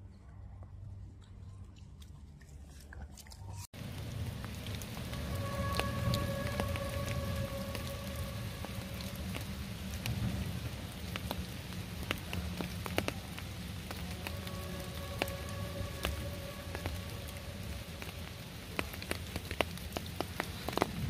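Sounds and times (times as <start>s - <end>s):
drops ticking on leaves: 1.2s - 21.0s
steady rain falling: 3.7s - 21.0s.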